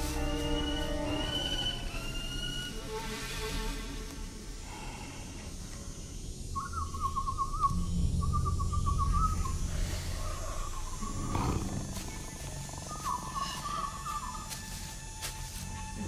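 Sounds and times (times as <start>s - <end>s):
low rumble: 6.0s - 14.0s
warbling animal trills: 6.5s - 14.5s.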